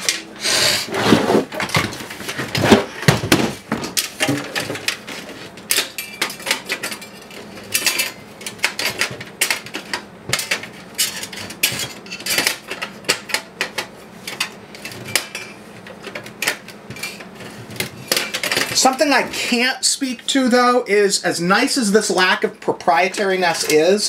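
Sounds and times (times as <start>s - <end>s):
metal case scraping: 0.8s - 3.0s
clicks and knocks of metal and plastic: 1.5s - 18.9s.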